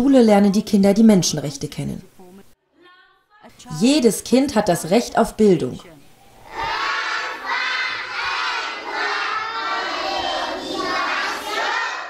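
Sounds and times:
children chanting together: 0:06.4 - 0:12.0.

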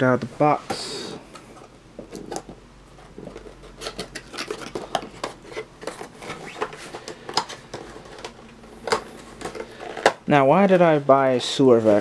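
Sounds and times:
cardboard scraping and rustling: 0:02.1 - 0:10.2.

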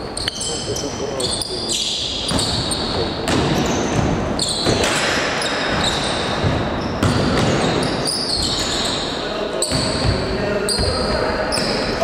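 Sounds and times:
sneakers squeaking on floor: 0:00.0 - 0:12.0
ball bouncing on court: 0:02.1 - 0:08.8, 0:09.6 - 0:12.0.

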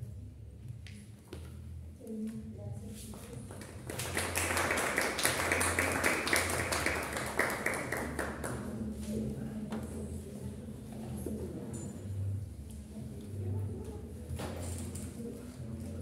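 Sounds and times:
audience clapping: 0:03.5 - 0:08.8.

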